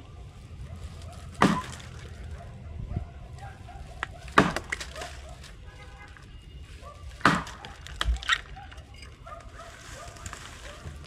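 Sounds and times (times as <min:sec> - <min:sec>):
axe chopping into log: 0:01.3 - 0:02.1, 0:04.2 - 0:05.0, 0:07.2 - 0:08.2.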